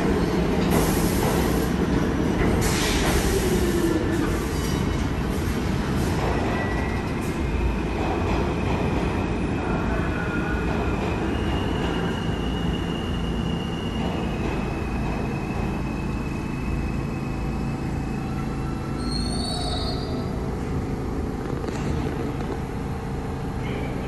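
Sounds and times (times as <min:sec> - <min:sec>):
subway train rumble: 0:00.0 - 0:24.0
high wheel squeal: 0:11.2 - 0:20.4.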